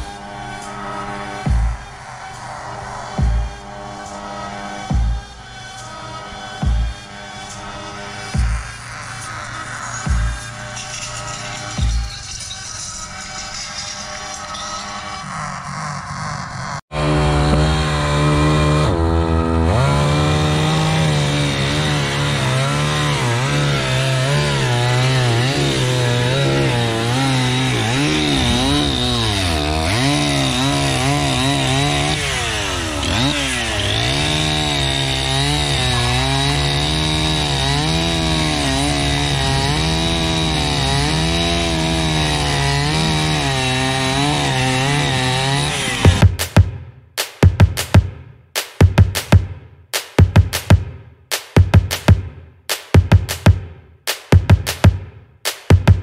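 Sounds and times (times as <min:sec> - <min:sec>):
chainsaw cutting wood: 0:05.8 - 0:46.7.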